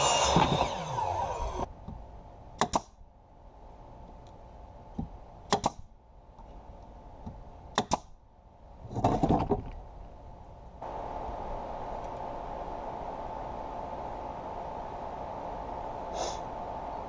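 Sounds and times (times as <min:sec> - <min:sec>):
nail gun snaps: 0:02.6 - 0:03.0, 0:05.5 - 0:05.8.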